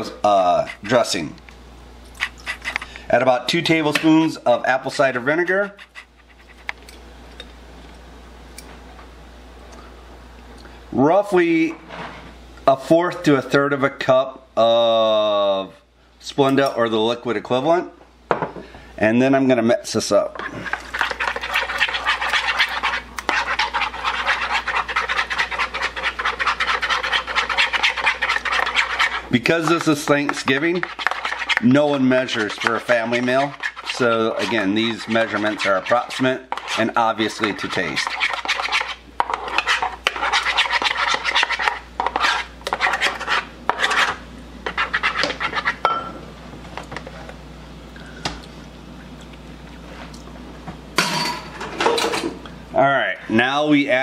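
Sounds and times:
fork whisking in a bowl: 0:00.0 - 0:01.2, 0:02.1 - 0:07.0, 0:20.2 - 0:46.0.

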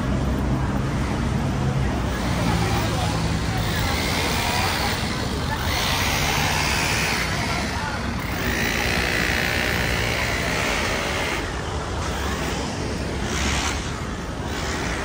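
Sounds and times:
city street traffic: 0:00.0 - 0:15.0.

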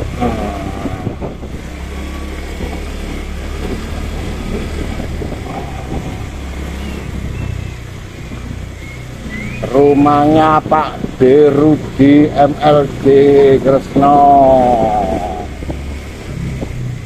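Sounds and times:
motorcycle engine running: 0:00.0 - 0:17.0
wind noise on microphone: 0:00.0 - 0:17.0.

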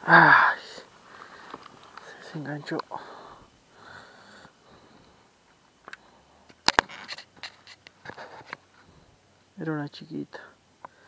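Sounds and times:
fishing tackle rustling: 0:05.8 - 0:08.8.

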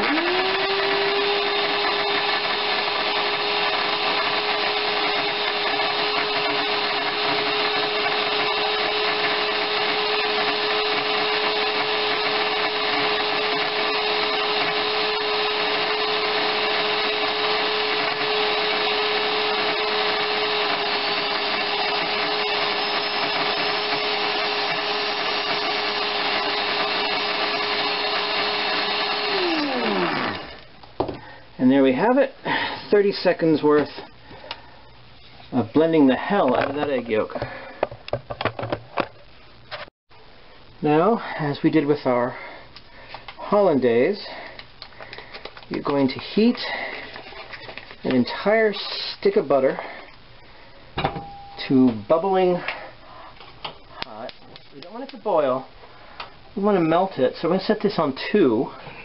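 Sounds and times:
electric blender motor whine: 0:00.0 - 0:30.7.

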